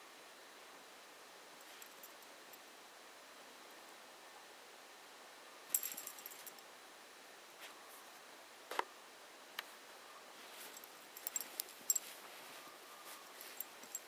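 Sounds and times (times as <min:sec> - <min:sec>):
metallic jingling of harness clip: 0:05.8 - 0:06.6, 0:10.6 - 0:12.2, 0:13.2 - 0:14.0.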